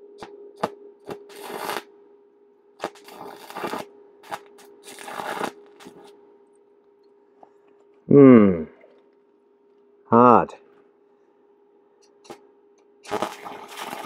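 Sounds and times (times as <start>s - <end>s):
steady hum: 0.0s - 14.0s
welding arc crackling: 0.6s - 1.9s, 2.8s - 6.1s, 13.0s - 14.0s.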